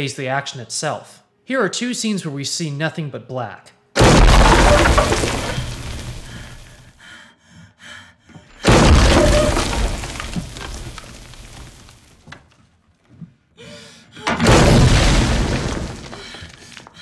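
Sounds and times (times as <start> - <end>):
loud deep crashes: 4.0 - 6.8, 8.6 - 11.9, 14.4 - 16.4.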